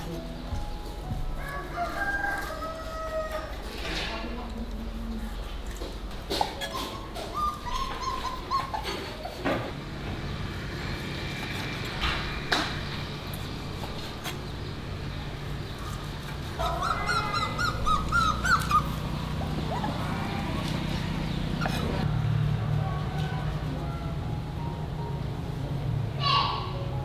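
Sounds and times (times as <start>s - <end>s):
high-pitched animal calls: 6.6s - 9.4s, 16.6s - 20.9s.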